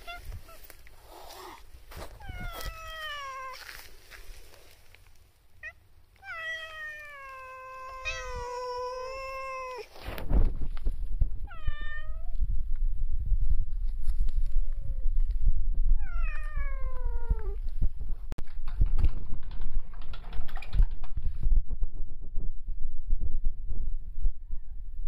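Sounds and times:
cat meowing: 0.0 - 0.7, 2.2 - 3.6, 5.6 - 9.9, 11.5 - 12.4, 16.0 - 17.6.

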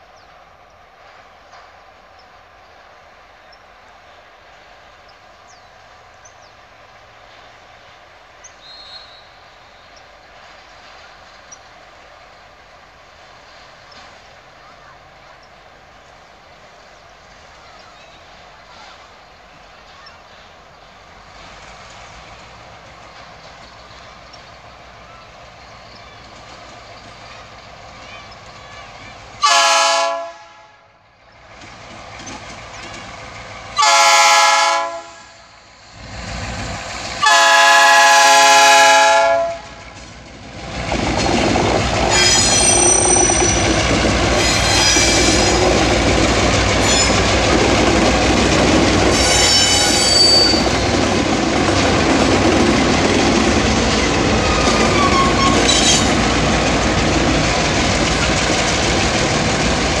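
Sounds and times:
locomotive engine and wheel rumble: 0.0 - 29.5, 31.0 - 60.0
train horn blasts: 29.4 - 31.0, 33.8 - 35.6, 37.2 - 39.8, 42.1 - 43.0, 49.1 - 50.8
wheel squeals: 42.0 - 45.8, 49.1 - 50.9, 54.4 - 56.2.

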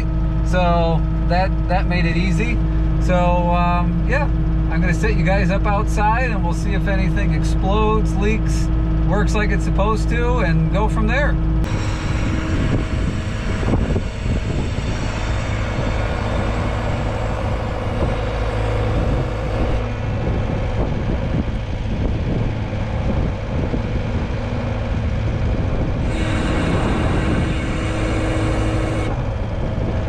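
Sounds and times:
skid steer engine running: 0.0 - 30.0.

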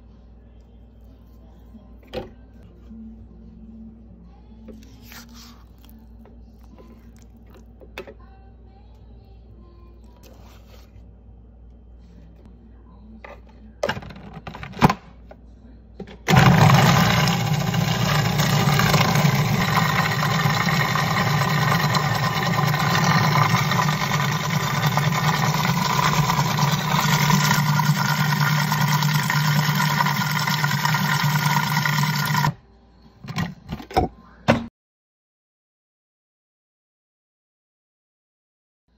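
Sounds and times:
food processor motor running: 16.3 - 32.6.

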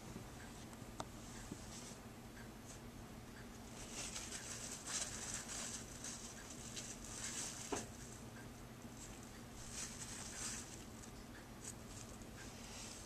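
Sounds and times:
low steady hum: 0.0 - 13.0
faint scratchy rustling: 3.7 - 8.2, 9.0 - 13.0.

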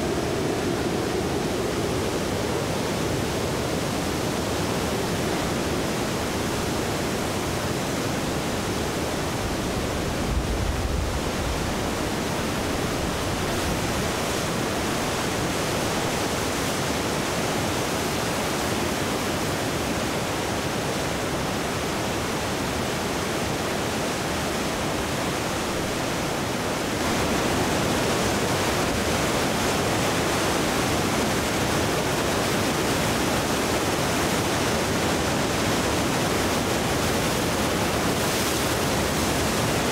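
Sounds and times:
river rushing over rapids: 0.0 - 39.9.

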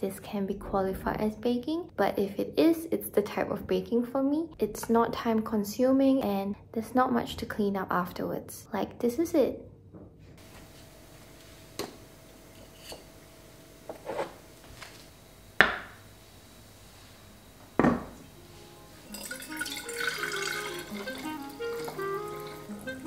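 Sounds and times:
soft music: 18.2 - 23.0
water pouring into glass carafe: 19.0 - 23.0.

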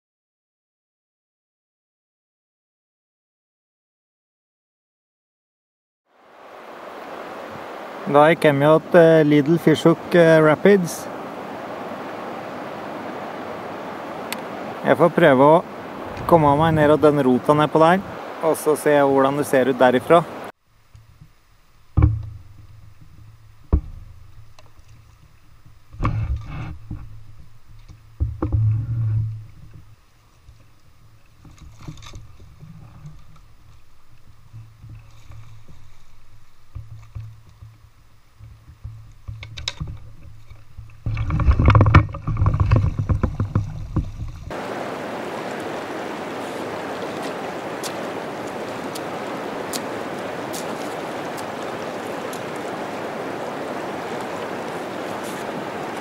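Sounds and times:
river rapids rushing over rocks: 6.2 - 20.5, 44.5 - 56.0
paddle knocking against canoe: 20.9 - 44.7.

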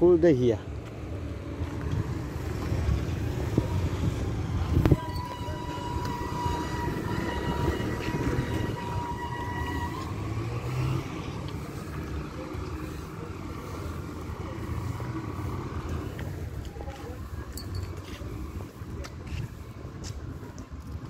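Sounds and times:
low street rumble: 0.0 - 21.0
high whine: 3.5 - 10.5.

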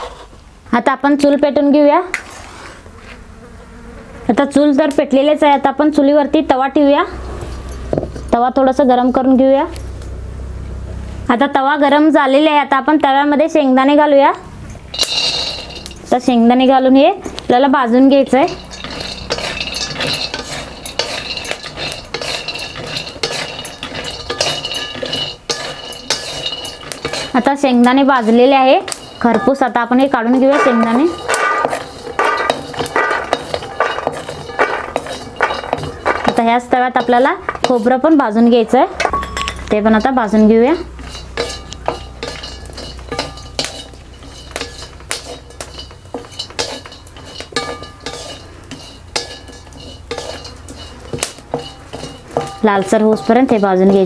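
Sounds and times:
griddle ringing faintly: 14.6 - 54.0
peanuts rattling in pan: 14.8 - 38.8, 39.7 - 54.0
spatula scraping iron pan: 14.8 - 38.8, 39.8 - 54.0.

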